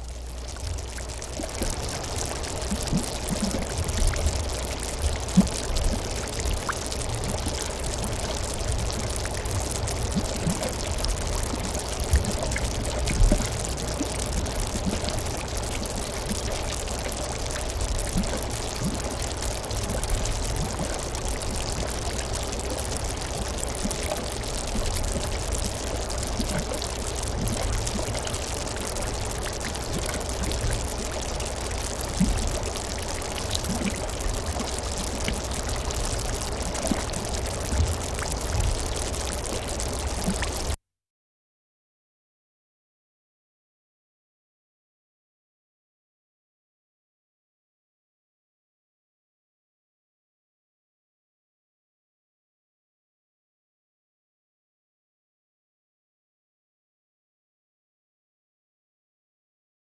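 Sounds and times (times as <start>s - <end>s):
bubbles fizzing at water surface: 0.0s - 40.8s
mud bubbling: 0.0s - 40.8s.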